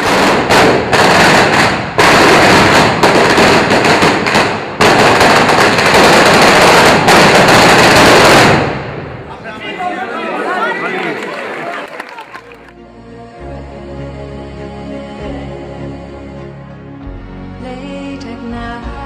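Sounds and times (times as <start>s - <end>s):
firecracker barrage crackling: 0.0s - 9.5s.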